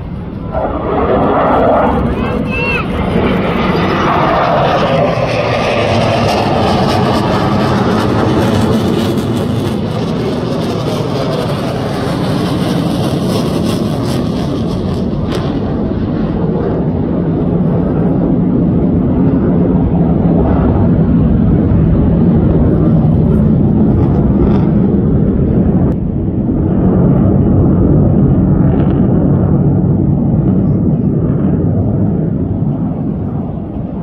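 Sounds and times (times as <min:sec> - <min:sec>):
fighter jets passing: 0:00.0 - 0:34.0
jet afterburner roar: 0:00.0 - 0:34.0.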